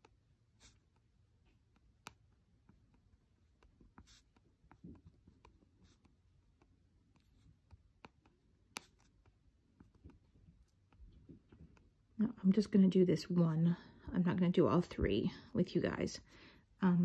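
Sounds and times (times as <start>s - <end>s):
crayon tapping on paper: 7.6s - 9.2s.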